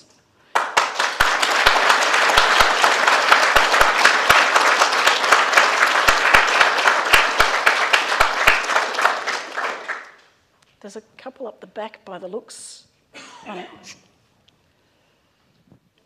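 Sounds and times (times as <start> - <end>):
audience applauding: 0.5 - 10.3.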